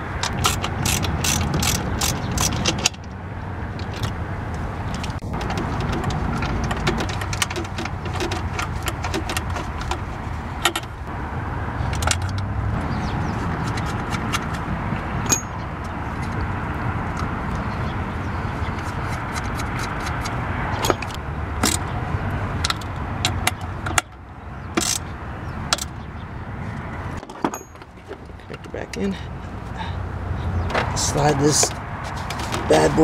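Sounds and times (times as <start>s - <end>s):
socket ratchet clicking: 0.2s - 3.0s.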